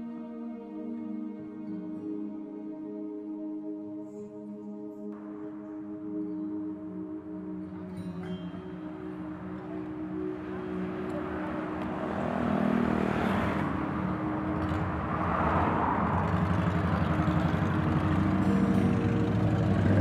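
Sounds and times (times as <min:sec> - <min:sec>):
motorcycle engines idling and revving: 0:08.2 - 0:20.0.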